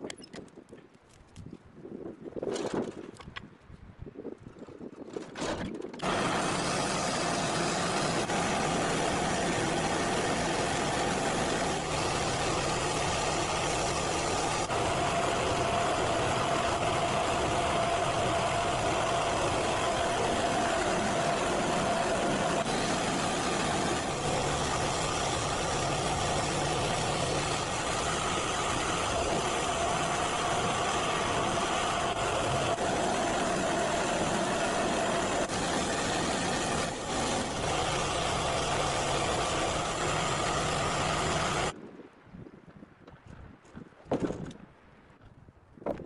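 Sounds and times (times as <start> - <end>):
small engine running: 6.0 - 41.8
steady whine: 6.0 - 41.8.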